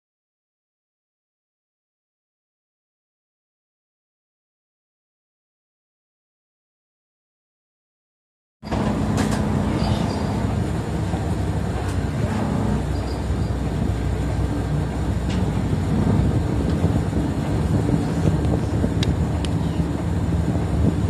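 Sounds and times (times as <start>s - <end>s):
bus engine running: 8.7s - 21.0s.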